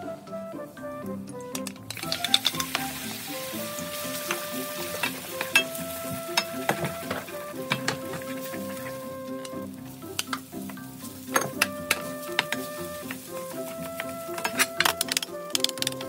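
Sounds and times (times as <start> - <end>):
background music: 0.0 - 16.0
egg sizzling in oil: 1.9 - 14.3.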